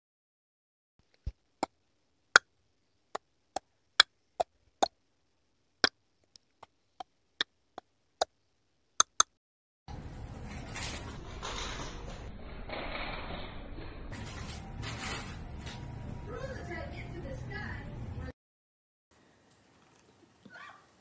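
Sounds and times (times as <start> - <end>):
sharp digital clicks: 9.0 - 9.3.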